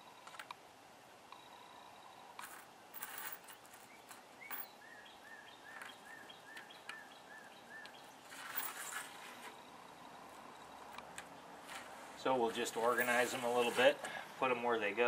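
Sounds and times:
hand and sleeve rustling: 0:02.4 - 0:04.7, 0:08.2 - 0:09.6, 0:11.6 - 0:14.2
small metal parts clicking: 0:02.4 - 0:04.7
bird chirping: 0:03.7 - 0:08.3.

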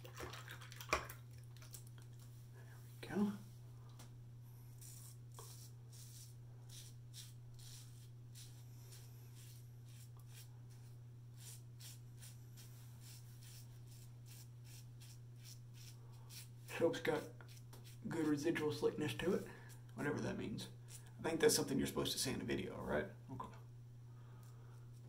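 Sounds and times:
steady low hum: 0:00.0 - 0:25.0
razor scraping stubble: 0:04.8 - 0:10.8, 0:11.4 - 0:19.4.

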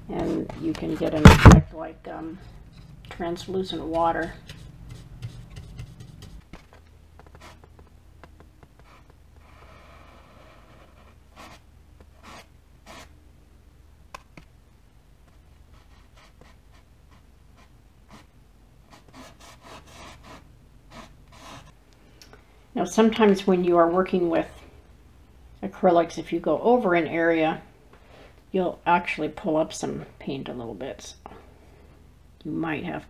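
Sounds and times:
low steady hum: 0:00.0 - 0:33.0
paintbrush rubbing on canvas: 0:04.2 - 0:07.8.

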